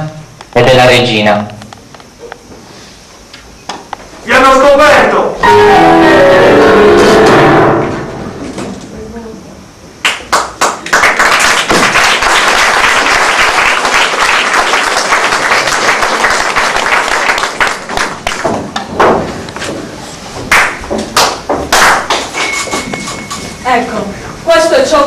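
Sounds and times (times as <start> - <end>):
audience clapping: 10.0 - 18.9, 20.5 - 22.4.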